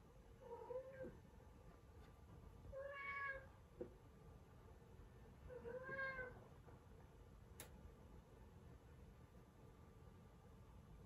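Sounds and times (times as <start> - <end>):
cat meowing faintly: 2.7 - 3.5, 5.5 - 6.4.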